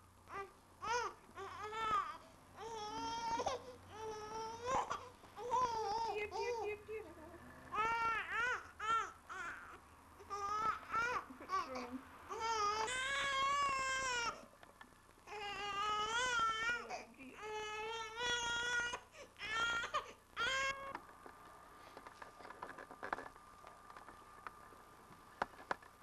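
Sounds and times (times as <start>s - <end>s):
infant crying: 0.3s - 6.8s, 7.7s - 14.4s, 15.3s - 21.0s.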